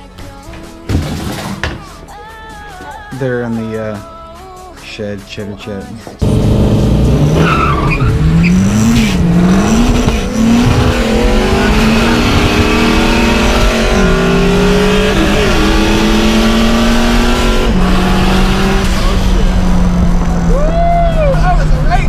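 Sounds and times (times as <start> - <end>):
turbocharged car engine accelerating: 6.2 - 22.0.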